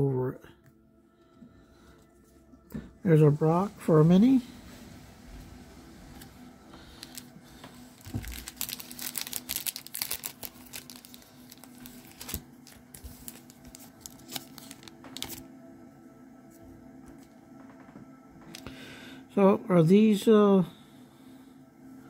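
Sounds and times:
cards and foil wrapper crinkling: 6.7 - 15.5.

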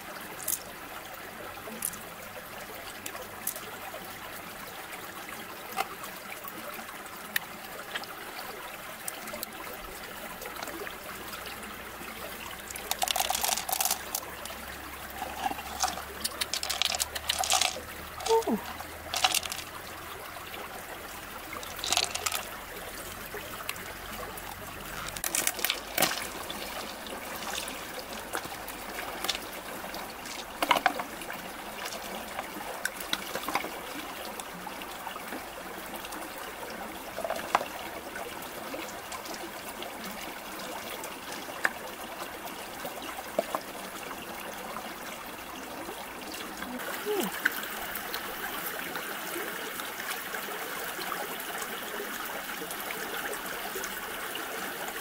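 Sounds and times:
stream trickling over rocks: 0.0 - 55.0
shells clicking and knocking: 12.9 - 14.3, 15.4 - 17.8, 19.1 - 19.7, 21.8 - 22.5.

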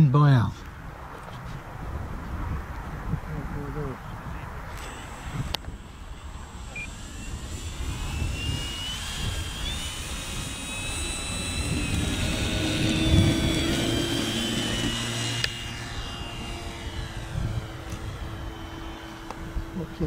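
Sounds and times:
model plane motor whine: 4.0 - 20.0.

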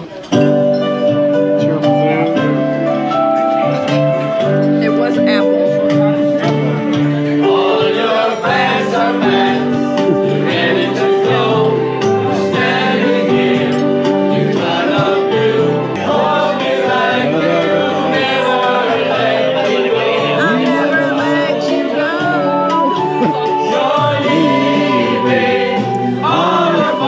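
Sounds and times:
sustained backing notes: 0.0 - 27.0
group of voices singing: 6.6 - 27.0.

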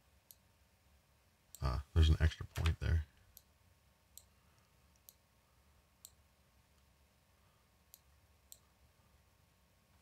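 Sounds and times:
computer mouse clicks: 0.2 - 0.4, 4.1 - 5.2, 6.0 - 6.9, 7.9 - 8.7.

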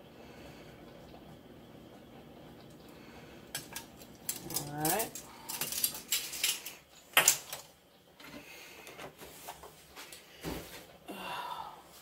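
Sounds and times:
kitchen utensils knocking and clicking: 3.5 - 7.7.

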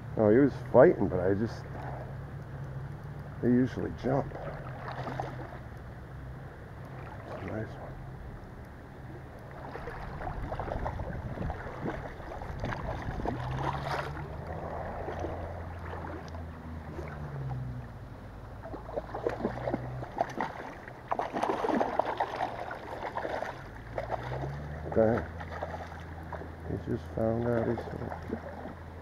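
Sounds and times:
low steady rumble: 0.0 - 29.0
water splashing around fish: 4.0 - 5.8, 6.8 - 7.9, 9.0 - 18.0, 18.6 - 29.0.

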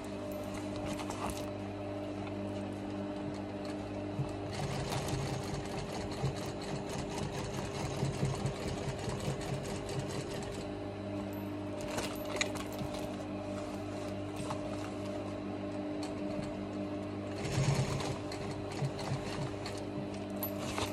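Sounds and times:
sewing machine stitching: 4.4 - 10.7, 17.3 - 19.9.

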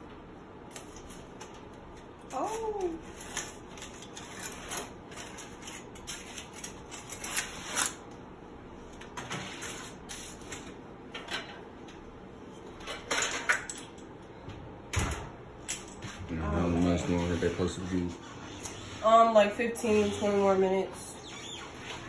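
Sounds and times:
aluminium foil rustling: 0.7 - 8.0.

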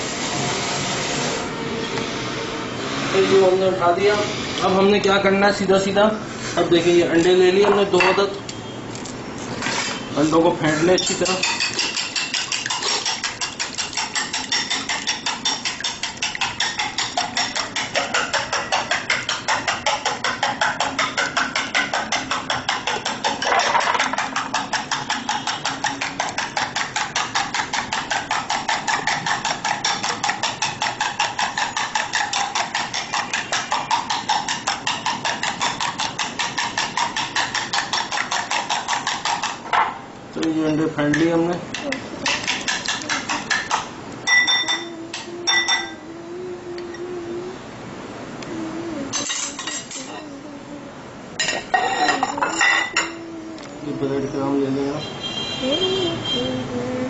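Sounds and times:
metal spoon clinking on glass bowl: 10.8 - 39.5, 40.7 - 46.0, 49.1 - 50.2, 51.4 - 53.2.

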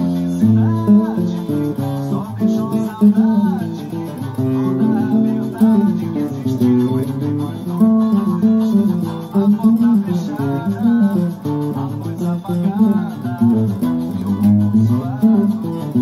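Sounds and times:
acoustic guitar solo: 0.0 - 16.0.

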